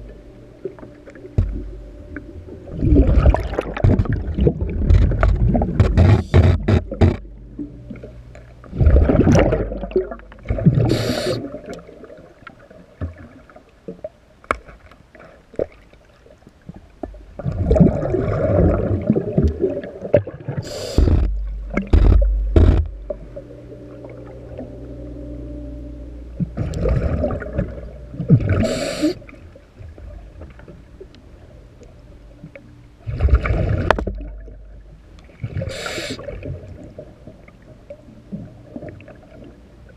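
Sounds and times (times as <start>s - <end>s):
faint steady hum: 0.0s - 39.9s
exhaled bubbles: 2.6s - 7.2s, 7.8s - 13.4s, 17.4s - 24.7s, 26.4s - 29.4s, 33.0s - 37.1s
diver breathing through regulator: 10.8s - 11.5s, 20.6s - 21.3s, 28.5s - 29.3s, 35.6s - 36.3s.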